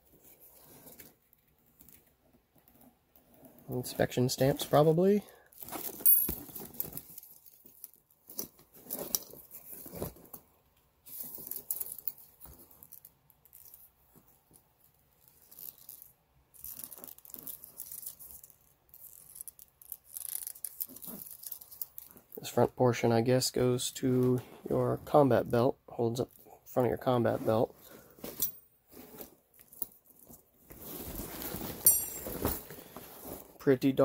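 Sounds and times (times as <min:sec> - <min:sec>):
canvas rustling: 0:27.2 - 0:33.6
straps and buckles shifting: 0:27.5 - 0:33.6.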